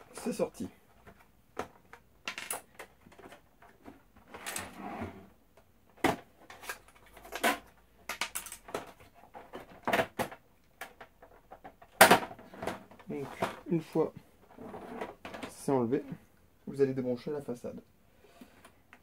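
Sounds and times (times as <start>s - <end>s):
plastic scraping: 14.4s - 15.7s.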